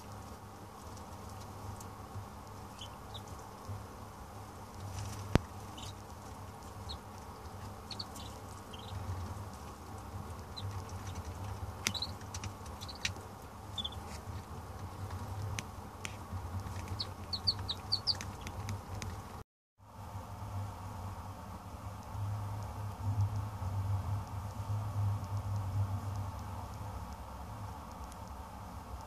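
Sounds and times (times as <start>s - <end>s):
ducklings pecking and pattering: 0.0s - 19.4s, 21.8s - 29.0s
steady low hum: 0.0s - 29.0s
ducklings peeping: 0.9s - 3.8s, 4.6s - 19.4s.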